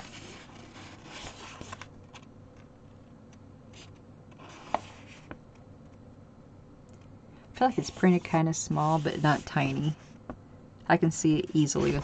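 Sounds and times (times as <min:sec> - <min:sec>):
paper rustling: 0:00.0 - 0:03.1.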